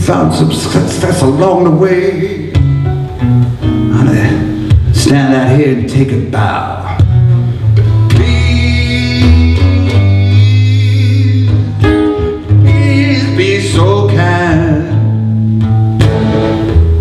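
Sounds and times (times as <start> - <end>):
man singing: 0.0 - 2.6, 3.9 - 7.2, 7.8 - 15.2
acoustic guitar strumming: 0.0 - 17.0.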